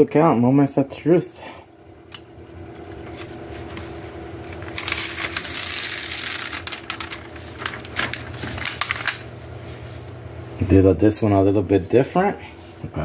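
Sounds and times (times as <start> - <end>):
low steady hum: 0.0 - 13.0
paper rustling and crinkling: 2.9 - 10.2.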